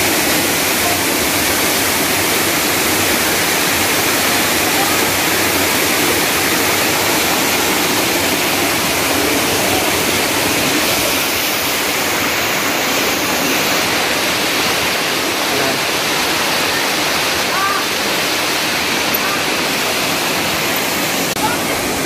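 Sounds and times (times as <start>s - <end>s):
waterfall rushing over boulders: 0.0s - 22.0s.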